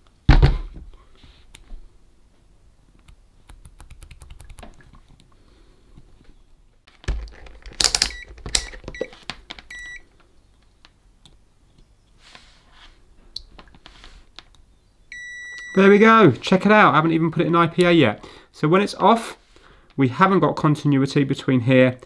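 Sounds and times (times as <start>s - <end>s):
multimeter probes handled: 6.9s - 9.8s.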